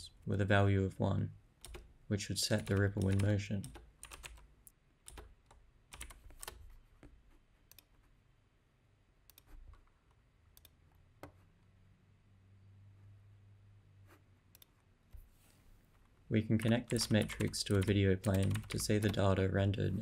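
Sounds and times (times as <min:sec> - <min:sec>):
computer keyboard keystrokes: 0:01.6 - 0:01.8, 0:02.5 - 0:04.4, 0:05.1 - 0:06.6, 0:16.6 - 0:19.2
mouse clicks: 0:14.5 - 0:14.8.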